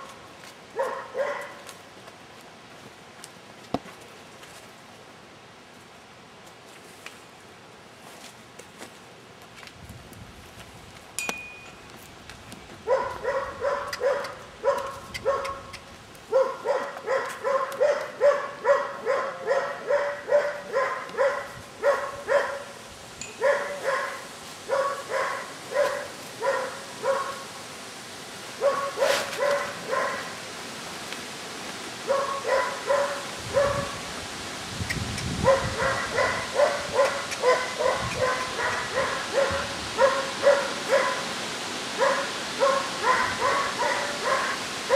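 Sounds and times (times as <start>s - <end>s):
dog barking: 0.8s - 1.6s, 12.9s - 15.7s, 16.3s - 22.7s, 23.4s - 27.4s, 28.6s - 30.3s, 32.1s - 34.0s, 35.4s - 41.3s, 42.0s - 44.9s.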